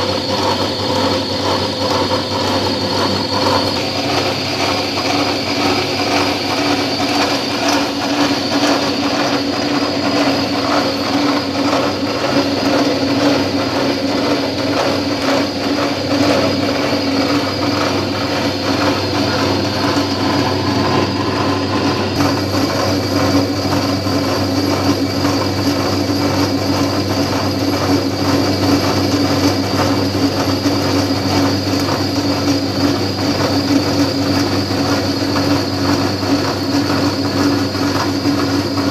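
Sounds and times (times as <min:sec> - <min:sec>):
milling machine motor hum: 0:00.0 - 0:38.9
rattle of metal cutting: 0:00.0 - 0:38.9.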